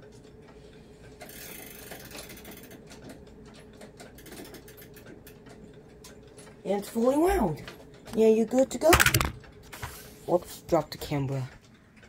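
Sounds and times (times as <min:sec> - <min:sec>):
clock chain pulled through sprocket: 0:01.2 - 0:02.8, 0:04.1 - 0:05.1
ratchet clicking rapidly: 0:01.2 - 0:02.8.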